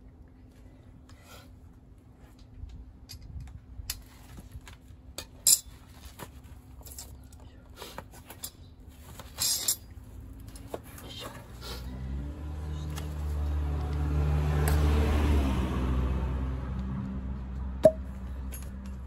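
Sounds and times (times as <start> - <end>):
metal hand tools clinking: 9.3 - 9.9.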